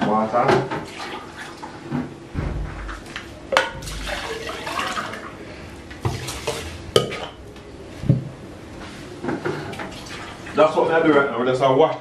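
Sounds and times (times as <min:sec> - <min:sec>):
water pouring and sloshing: 0:00.6 - 0:07.4, 0:09.4 - 0:10.7.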